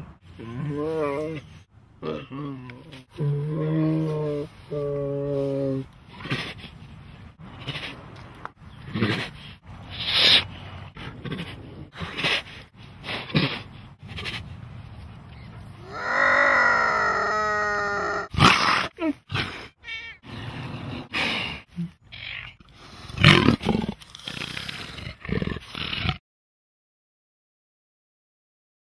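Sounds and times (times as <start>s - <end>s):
tiger calling: 15.8s - 18.3s.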